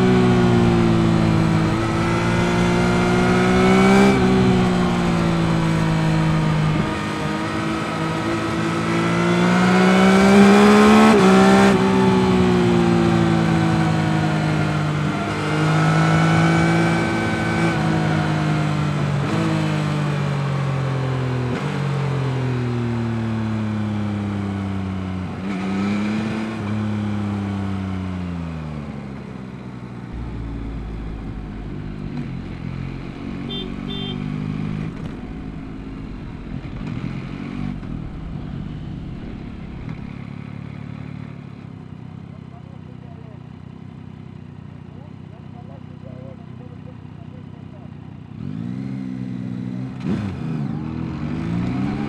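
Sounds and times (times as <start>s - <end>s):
motorcycle engine accelerating: 0.0s - 44.6s, 48.3s - 52.0s.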